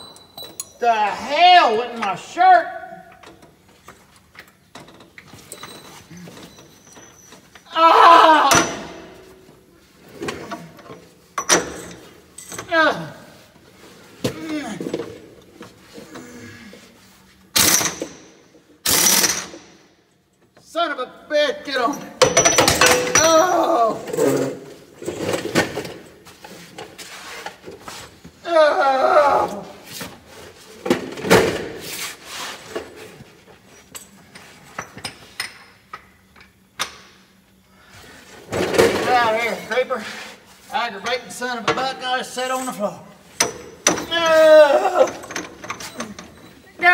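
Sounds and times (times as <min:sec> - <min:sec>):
metallic clanks of tools: 0:00.0 - 0:00.8, 0:22.0 - 0:24.5
impact wrench bursts: 0:17.5 - 0:19.8.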